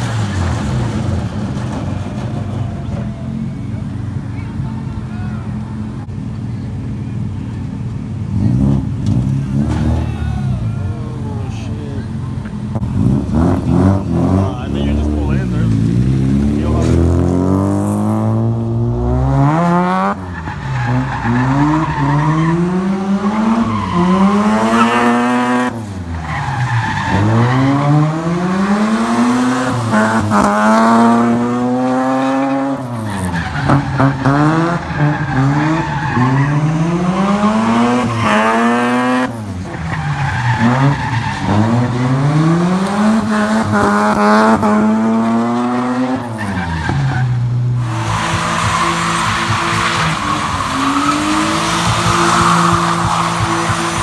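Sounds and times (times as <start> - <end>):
rotary engine revving hard: 12.8 - 54.0
tire squeal: 19.5 - 30.6, 31.8 - 43.9, 46.0 - 54.0.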